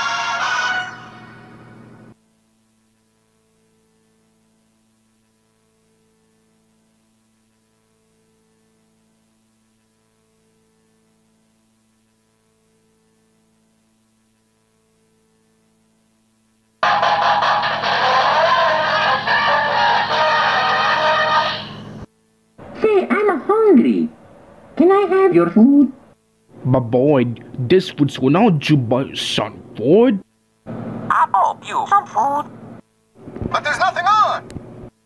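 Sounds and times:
music: 0:00.0 - 0:24.1
faint electrical hum: 0:00.0 - 0:35.0.

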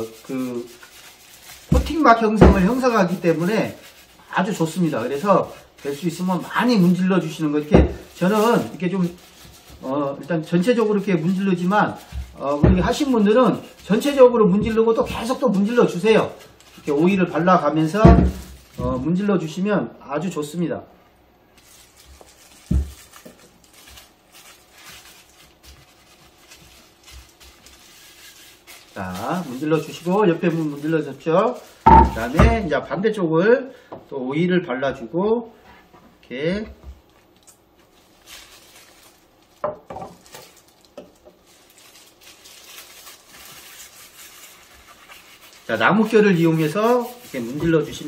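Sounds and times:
gloved hands rubbing wood: 0:25.5 - 0:30.0, 0:44.1 - 0:48.0.

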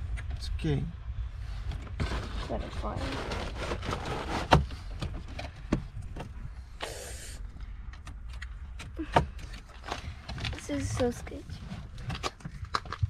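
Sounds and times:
steady low rumble: 0:00.0 - 0:13.0
plastic scrape: 0:01.9 - 0:04.9.

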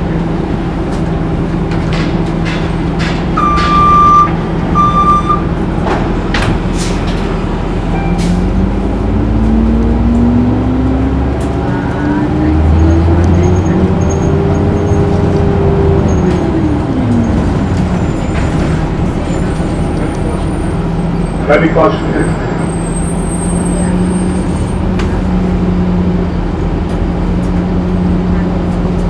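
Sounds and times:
bus drive whine rising: 0:00.0 - 0:29.0
diesel engine running: 0:00.0 - 0:29.0
electronic beeps: 0:03.4 - 0:05.4.

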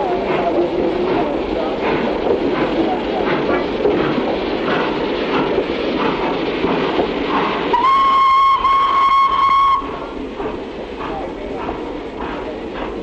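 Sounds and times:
steam locomotive chuffing: 0:00.0 - 0:13.0
steam whistle steady note: 0:07.7 - 0:09.9.

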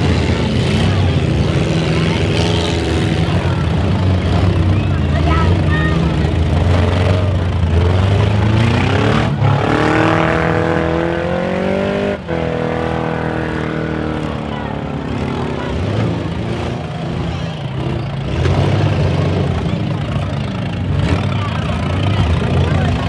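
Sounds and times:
car engine revving: 0:00.0 - 0:23.0
car engines running under load: 0:00.0 - 0:23.0.

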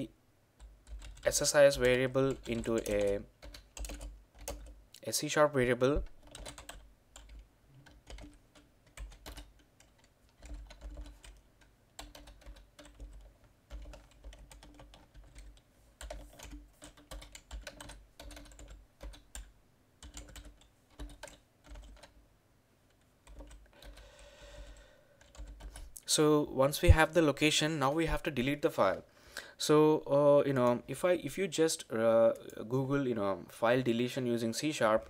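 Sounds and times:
typing on keyboard: 0:00.6 - 0:04.8, 0:06.0 - 0:22.2, 0:22.9 - 0:24.0, 0:24.6 - 0:25.9.

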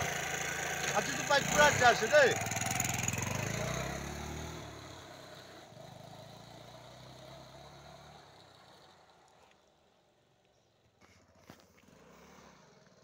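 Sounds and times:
small motorcycle engine: 0:00.0 - 0:09.4, 0:11.0 - 0:13.0.

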